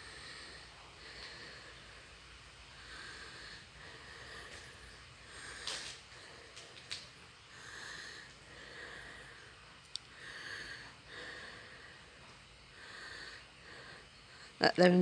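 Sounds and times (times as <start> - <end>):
breathing close to microphone: 0.0 - 14.6
rain patter: 0.8 - 8.4.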